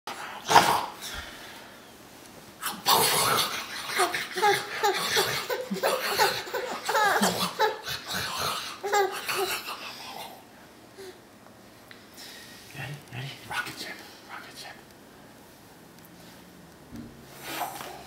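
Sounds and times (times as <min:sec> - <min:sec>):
baby laughing: 0:03.1 - 0:09.9.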